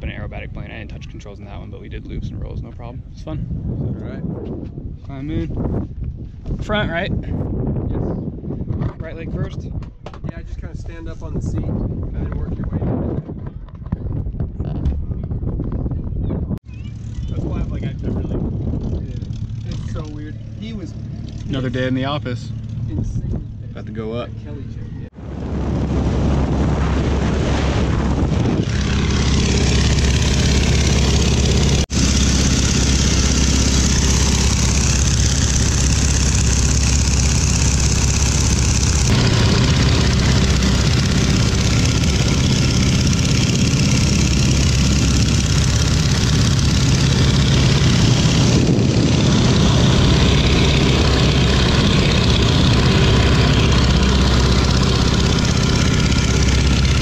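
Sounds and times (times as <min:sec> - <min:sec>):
propeller aircraft engine: 0:16.6 - 0:57.0
wind rushing: 0:25.2 - 0:57.0.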